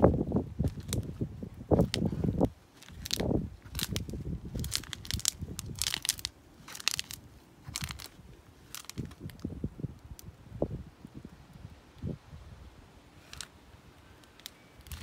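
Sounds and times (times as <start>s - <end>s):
footsteps crushing insects: 0.6s - 9.5s, 14.2s - 15.0s.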